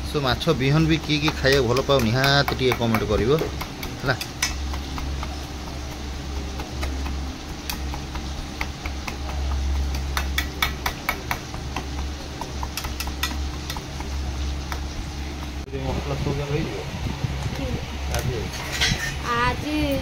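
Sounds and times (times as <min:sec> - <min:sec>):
spoon stirring batter: 0:00.6 - 0:15.7.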